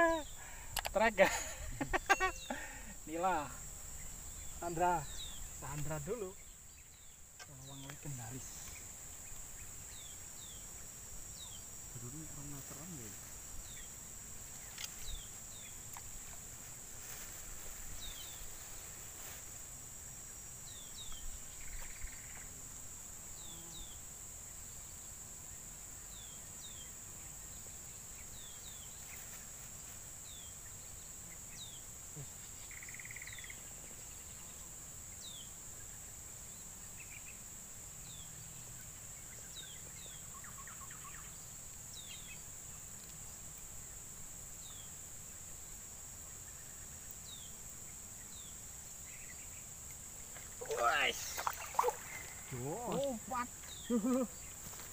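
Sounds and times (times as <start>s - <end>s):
high-pitched insect drone: 0.0s - 15.8s, 26.0s - 36.0s, 48.3s - 54.9s.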